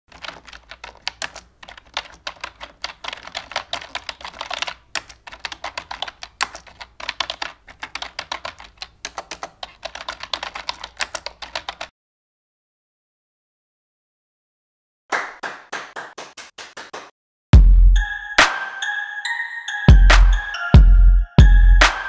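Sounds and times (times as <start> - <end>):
computer keyboard typing: 0.1 - 11.9.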